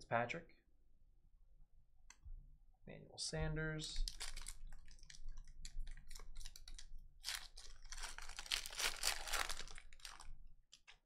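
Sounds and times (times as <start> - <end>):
foil wrapper tearing and crinkling: 4.1 - 10.3.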